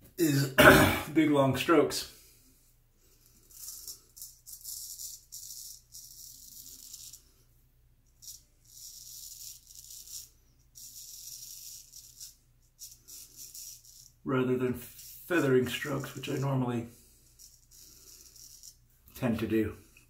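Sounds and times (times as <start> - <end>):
razor scraping stubble: 8.2 - 19.6.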